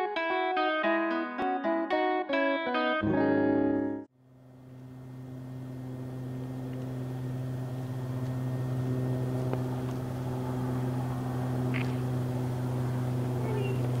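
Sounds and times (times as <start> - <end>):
low mechanical hum: 4.1 - 14.0.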